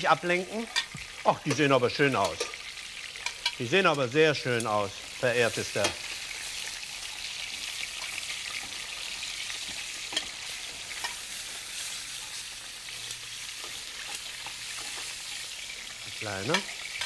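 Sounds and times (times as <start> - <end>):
chicken sizzling in hot oil: 0.0 - 17.0
metal tongs clinking: 1.5 - 2.6, 3.2 - 3.6, 9.7 - 10.4, 11.0 - 11.2.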